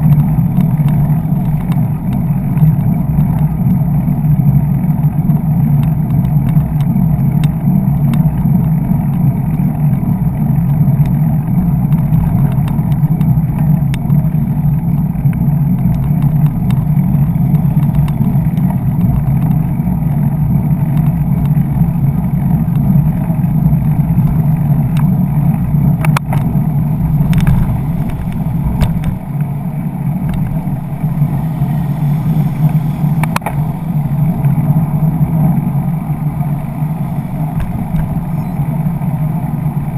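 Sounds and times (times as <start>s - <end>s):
sharp clicks and rattles: 0.0s - 3.8s, 5.8s - 10.0s, 11.8s - 19.7s, 24.1s - 39.9s
slow traffic: 0.0s - 39.9s
wind rumble on microphone: 0.0s - 39.9s.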